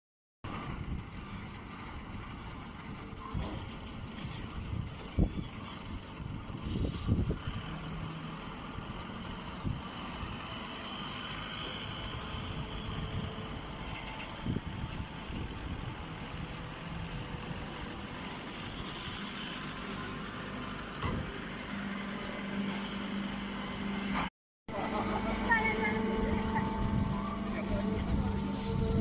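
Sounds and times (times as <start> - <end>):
machine motor humming: 7.4 - 29.0.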